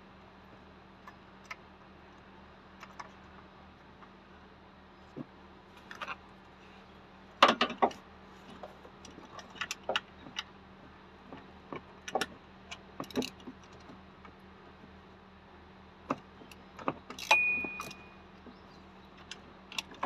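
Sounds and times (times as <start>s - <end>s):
metal tools clinking on engine parts: 16.5s - 18.3s.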